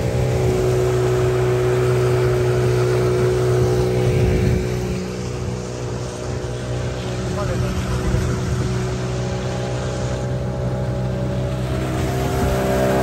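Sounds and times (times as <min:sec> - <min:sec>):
wind noise: 0:00.0 - 0:09.4
motorboat engine running: 0:00.0 - 0:13.0
water noise: 0:00.0 - 0:13.0.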